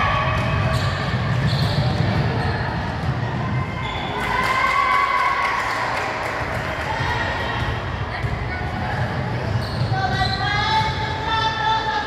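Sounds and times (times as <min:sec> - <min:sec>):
sneakers squeaking on court: 0:00.4 - 0:03.2, 0:09.1 - 0:11.1.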